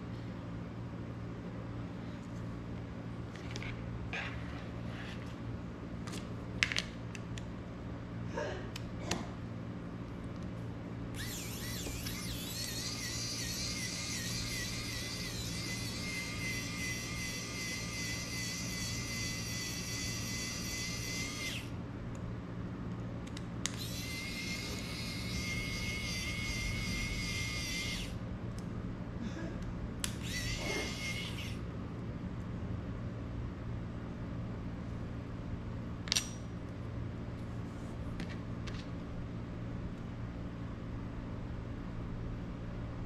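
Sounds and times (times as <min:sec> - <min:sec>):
soldering iron electronic whine: 0:11.1 - 0:21.8, 0:23.6 - 0:28.2, 0:30.0 - 0:31.6.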